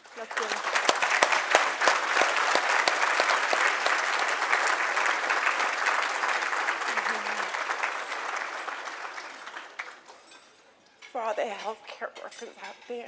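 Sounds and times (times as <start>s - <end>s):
audience applauding: 0.0s - 10.4s.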